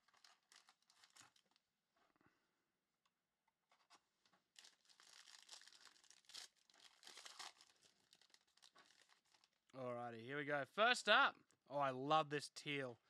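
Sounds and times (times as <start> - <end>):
foil wrapper crinkling and tearing: 0.0 - 1.6, 4.4 - 9.7.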